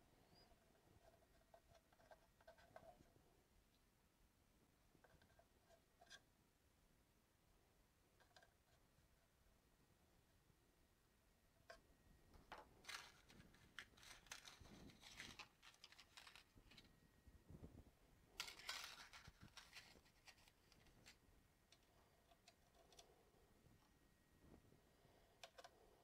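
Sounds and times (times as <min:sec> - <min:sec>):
faint clicks and rustling: 0:11.6 - 0:26.0.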